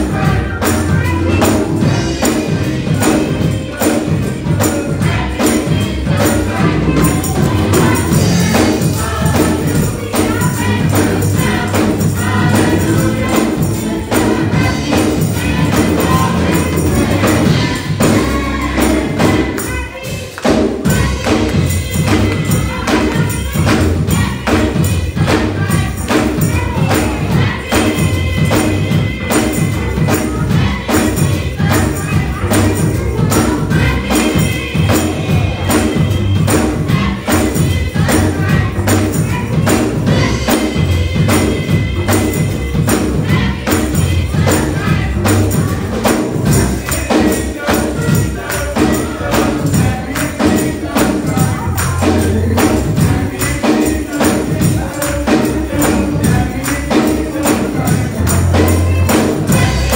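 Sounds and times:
bass line: 0:00.0 - 0:19.9, 0:20.8 - 0:59.9
driving beat: 0:00.0 - 0:59.9
youth choir singing gospel: 0:00.0 - 0:59.9.

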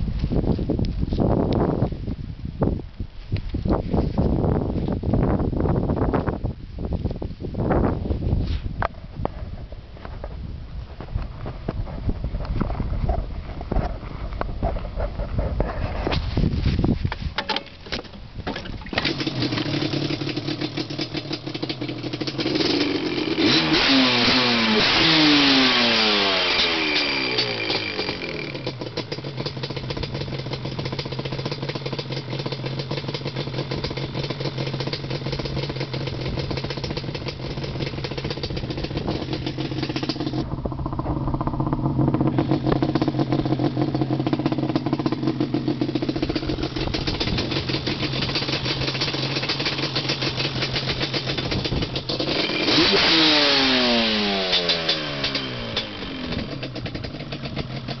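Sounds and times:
motorcycle engine idling and revving: 0:07.8 - 0:58.0.

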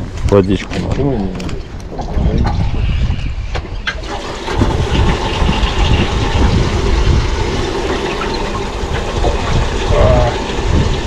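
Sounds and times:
wind buffeting microphone: 0:00.0 - 0:11.0
water slapping boat hull: 0:03.4 - 0:11.0.

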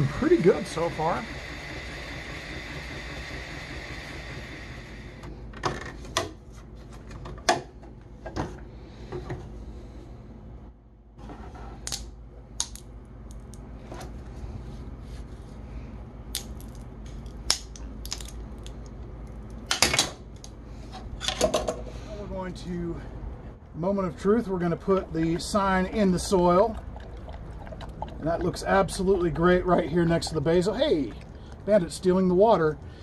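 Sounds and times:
three d printer running: 0:00.0 - 0:05.3.

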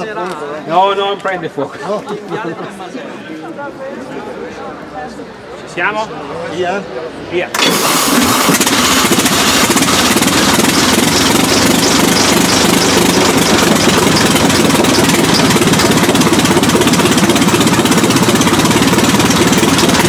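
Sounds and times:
old car engine running: 0:07.5 - 0:20.0.

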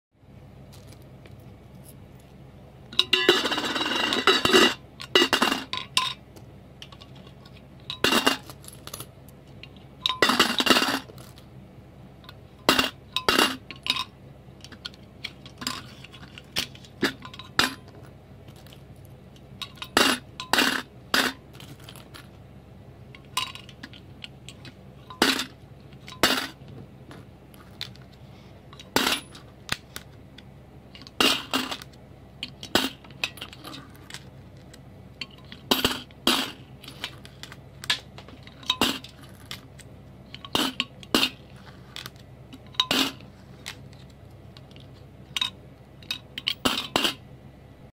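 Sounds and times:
coins clinking into piggy bank: 0:45.4 - 0:47.2.

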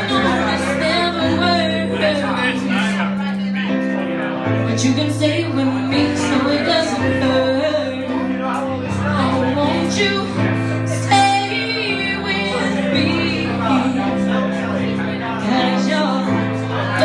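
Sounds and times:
woman singing a slow ballad: 0:00.0 - 0:03.1, 0:04.6 - 0:17.0
electric keyboard chords: 0:00.0 - 0:17.0.

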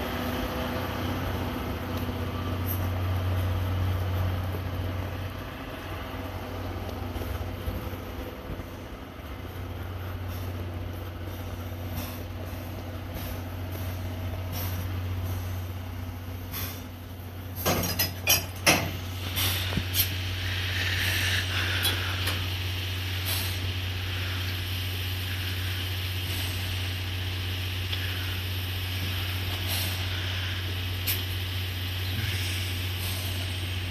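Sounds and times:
steam hissing: 0:00.0 - 0:33.9
steam locomotive low hum: 0:00.0 - 0:33.9
metallic clanks of coupling gear: 0:17.6 - 0:19.5.

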